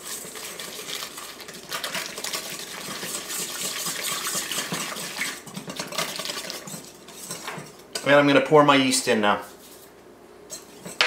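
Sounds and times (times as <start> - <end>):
whisk sloshing liquid: 0.0 - 8.0
whisk clinking against metal bowl: 1.7 - 8.2, 10.5 - 11.0.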